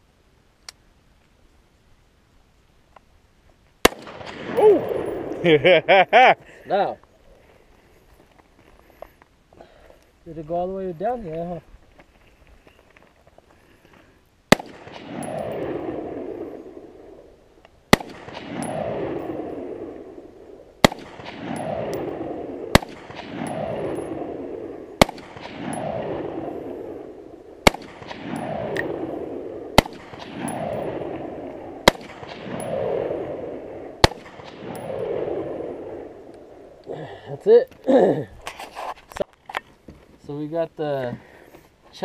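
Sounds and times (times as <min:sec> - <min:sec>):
rifle shots with echo: 0:03.8 - 0:05.4, 0:14.5 - 0:17.2, 0:17.9 - 0:36.7.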